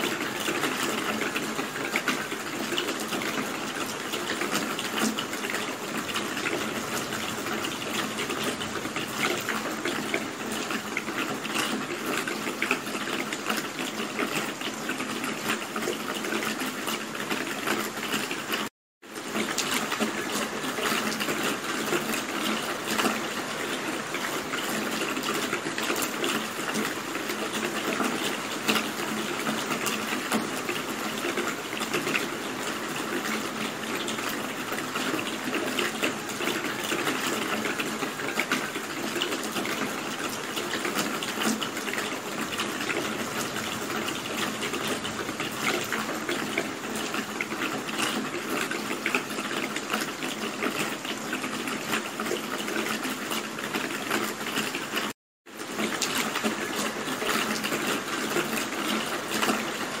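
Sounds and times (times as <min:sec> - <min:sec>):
steady rain falling: 0:00.0 - 1:00.0.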